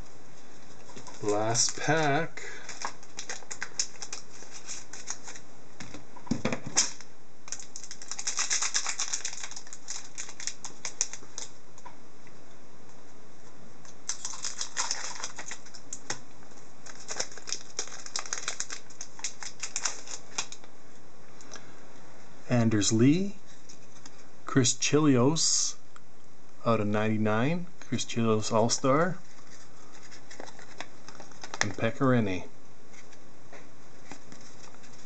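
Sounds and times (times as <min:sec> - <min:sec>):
card pack wrapper crinkling: 0:00.9 - 0:05.4, 0:06.7 - 0:11.6, 0:14.0 - 0:16.2, 0:16.8 - 0:20.7, 0:29.2 - 0:32.0, 0:34.0 - 0:35.0.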